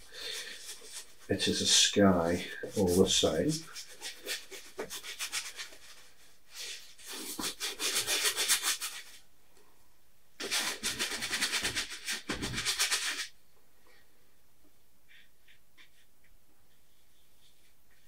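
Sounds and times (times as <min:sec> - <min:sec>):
paintbrush scrubbing on canvas: 0:00.0 - 0:09.2, 0:10.4 - 0:13.3, 0:16.7 - 0:18.0.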